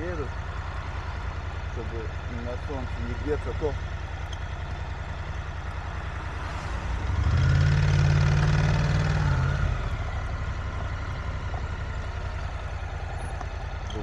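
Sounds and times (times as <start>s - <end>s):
motorcycle engine pulling away: 0.0s - 14.0s.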